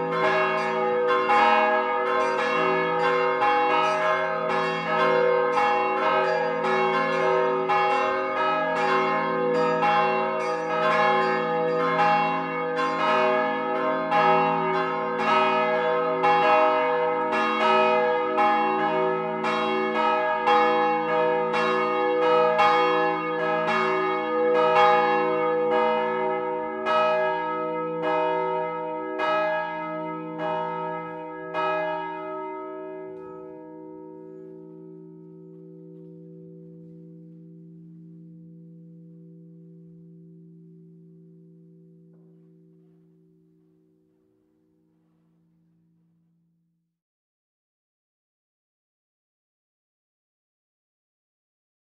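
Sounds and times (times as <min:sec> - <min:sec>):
church bells ringing: 0:00.0 - 0:43.6.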